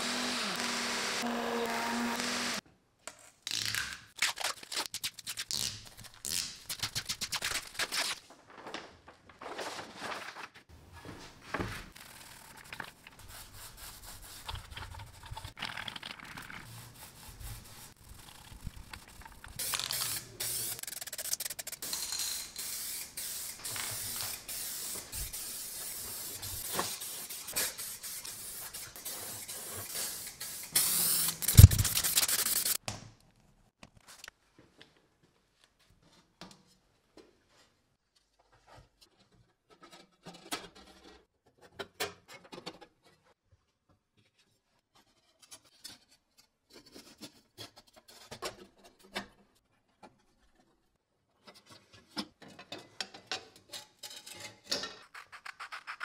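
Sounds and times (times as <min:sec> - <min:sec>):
spray paint hissing: 0:16.6 - 0:32.8.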